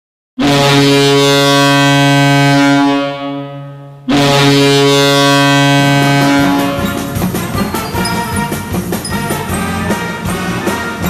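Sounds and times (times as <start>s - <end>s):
goal horn blasting with reverb: 0.4s - 11.0s.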